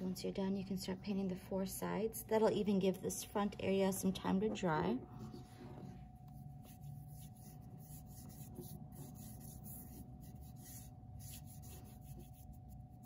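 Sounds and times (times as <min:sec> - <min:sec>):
paintbrush strokes on canvas: 0:05.2 - 0:13.0.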